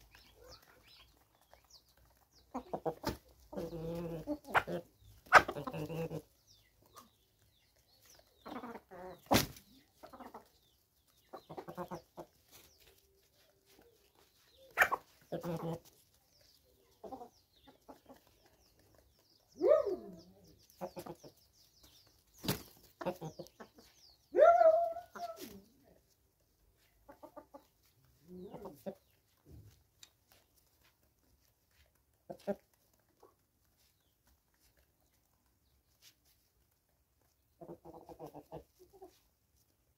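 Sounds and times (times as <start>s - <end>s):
hens clucking: 0.0s - 7.2s, 8.0s - 21.5s, 22.4s - 31.0s, 31.7s - 34.8s, 37.3s - 39.3s
chicken squawks: 3.6s - 5.9s, 14.7s - 15.7s.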